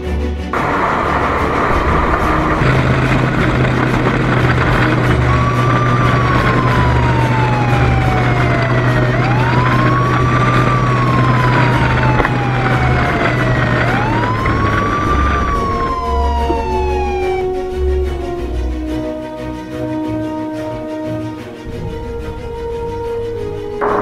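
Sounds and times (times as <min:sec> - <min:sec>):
steady rushing noise: 0:00.5 - 0:18.9
low hum: 0:00.5 - 0:19.2
police siren wailing: 0:00.6 - 0:24.0.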